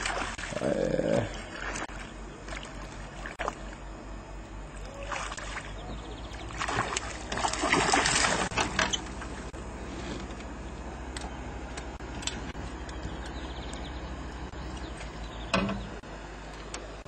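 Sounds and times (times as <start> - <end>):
steady low hum: 0.0 - 17.0
fish splashing at surface: 6.6 - 8.7.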